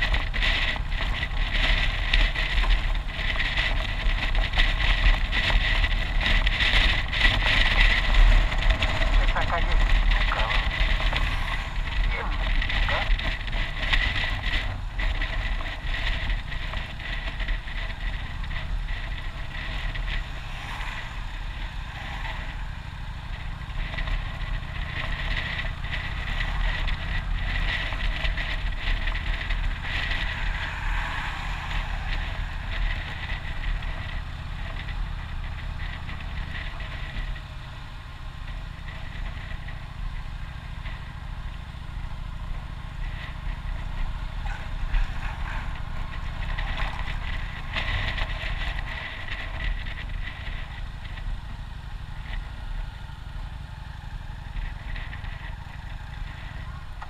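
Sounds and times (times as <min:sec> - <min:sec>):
motorcycle engine running: 0:00.0 - 0:57.0
wind noise on microphone: 0:00.0 - 0:57.0.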